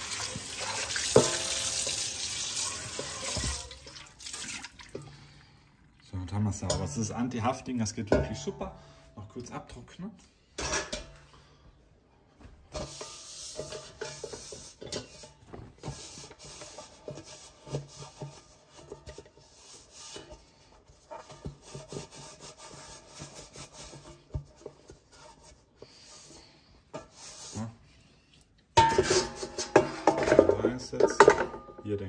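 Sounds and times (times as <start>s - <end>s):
cloth rubbing non-stick pot: 0.0s - 3.8s, 12.8s - 28.1s.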